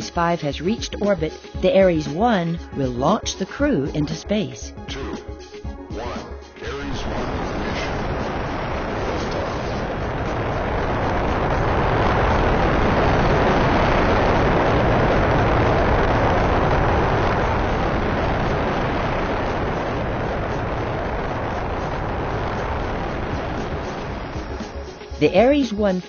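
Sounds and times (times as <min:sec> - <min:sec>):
rocket engine roar: 0:05.9 - 0:26.0.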